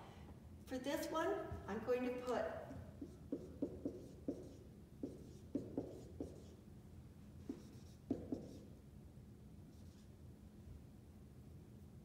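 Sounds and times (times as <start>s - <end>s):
marker writing on whiteboard: 2.8s - 6.6s, 7.4s - 8.8s, 9.7s - 10.1s.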